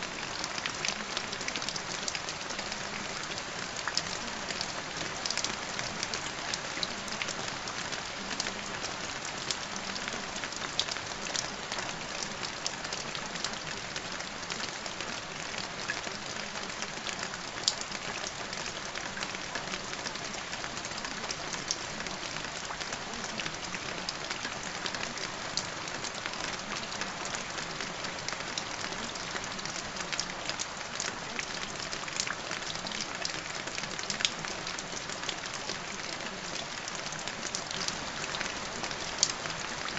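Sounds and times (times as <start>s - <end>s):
steady rain: 0.0s - 39.9s.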